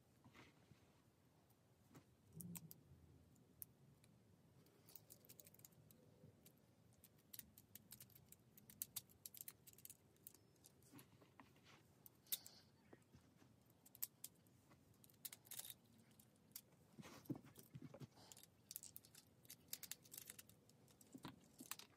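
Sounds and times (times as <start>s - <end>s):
plastic parts clicking together: 6.4s - 10.8s, 18.3s - 21.9s.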